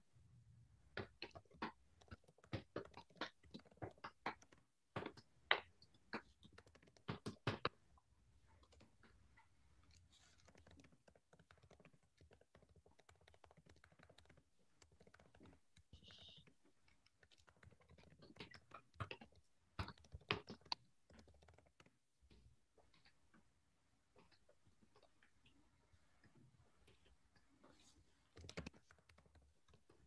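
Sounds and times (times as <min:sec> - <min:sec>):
computer keyboard tapping: 0:01.0 - 0:07.8, 0:09.9 - 0:22.0, 0:28.4 - 0:30.0.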